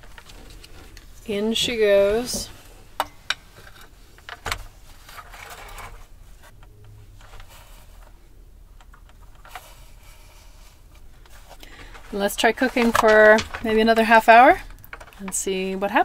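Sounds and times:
scraping: 9.0s - 15.7s.

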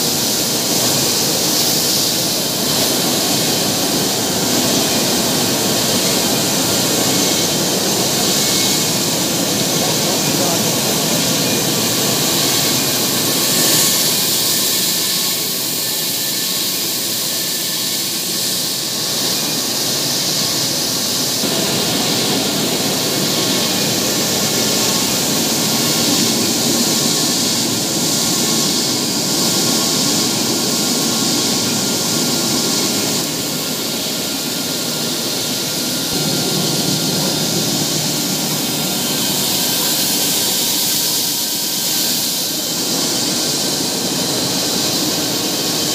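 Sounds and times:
machinery running with hiss: 0.0s - 45.9s.

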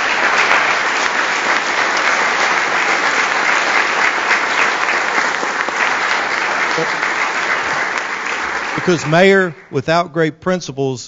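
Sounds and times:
crowd applauding: 0.0s - 10.0s.

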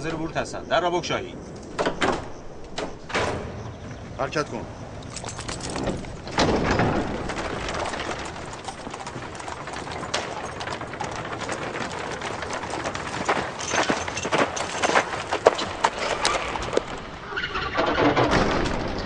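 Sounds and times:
hooves clip-clopping on hard ground: 4.4s - 17.2s.

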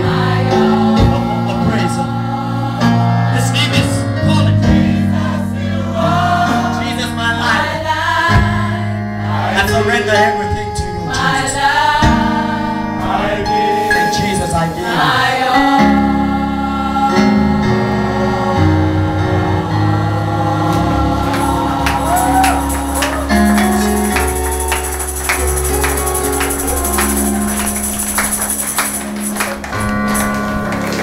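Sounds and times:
voices singing: 0.0s - 29.7s
held chords: 0.0s - 31.0s
tambourine: 22.0s - 30.3s.

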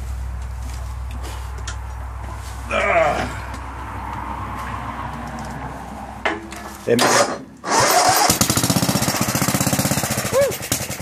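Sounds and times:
garden tractor engine starting: 6.9s - 11.0s.

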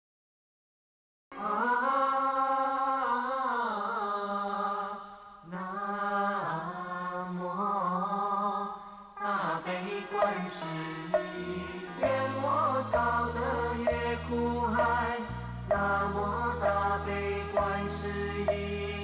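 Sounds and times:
voice chanting held notes: 9.2s - 19.0s.

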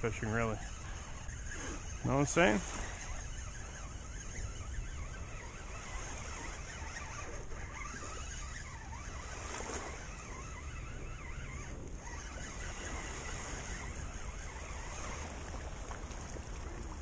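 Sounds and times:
waves washing: 0.0s - 17.0s
wind rumbling on microphone: 0.0s - 17.0s.

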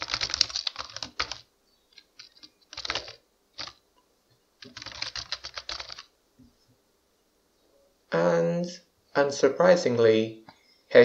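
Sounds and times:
computer keyboard typing: 0.0s - 3.8s, 4.6s - 6.1s.

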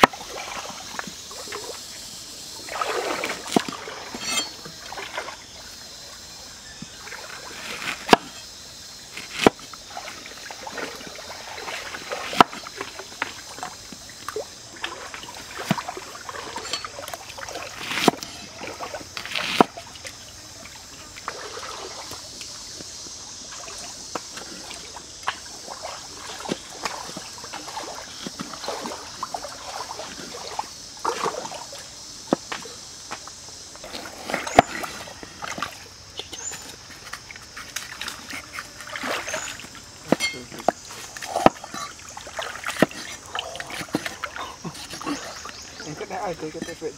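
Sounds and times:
stream water trickling: 0.0s - 46.9s.

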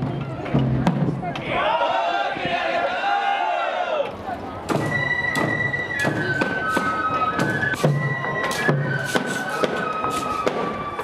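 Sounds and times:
sharp drum strikes: 4.7s - 9.8s
bamboo flute melody: 4.7s - 11.0s.

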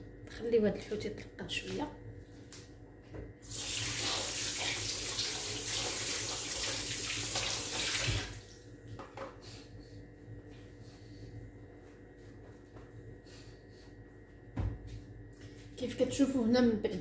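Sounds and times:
tap water running into sink: 3.4s - 8.4s.

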